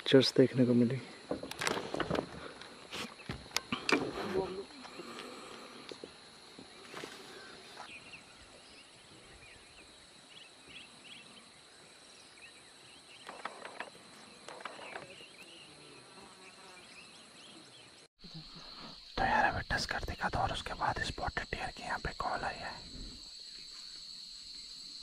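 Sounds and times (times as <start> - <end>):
insects droning: 0.0 - 25.0
faint bird chirps: 6.7 - 25.0.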